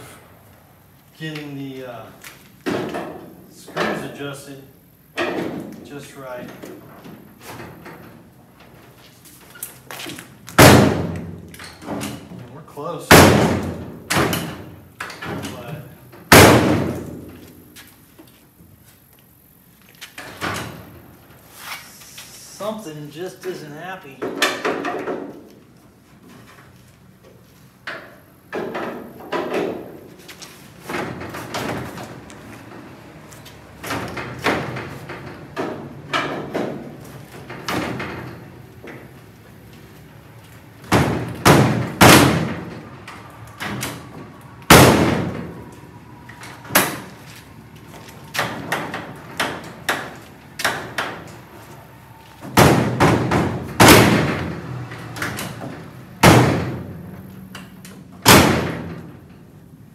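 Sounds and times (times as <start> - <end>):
car door slamming shut: 16.3 - 17.2, 44.7 - 45.6, 52.5 - 54.6.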